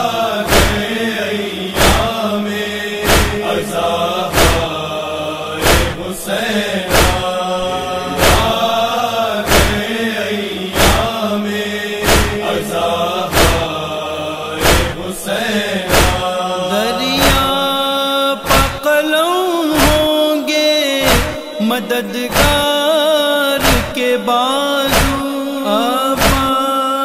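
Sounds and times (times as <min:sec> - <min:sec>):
solo voice singing held notes: 0:00.0 - 0:27.0
voices chanting a lament: 0:00.0 - 0:27.0
loud regular beat: 0:00.5 - 0:01.0, 0:01.8 - 0:02.2, 0:03.0 - 0:03.6, 0:04.2 - 0:04.8, 0:05.6 - 0:06.0, 0:06.9 - 0:07.3, 0:08.2 - 0:08.8, 0:09.5 - 0:09.9, 0:10.8 - 0:11.2, 0:12.0 - 0:13.8, 0:14.6 - 0:15.0, 0:15.9 - 0:16.3, 0:17.2 - 0:17.6, 0:18.5 - 0:18.9, 0:19.8 - 0:20.2, 0:21.0 - 0:21.5, 0:22.3 - 0:22.8, 0:23.6 - 0:24.0, 0:24.9 - 0:25.2.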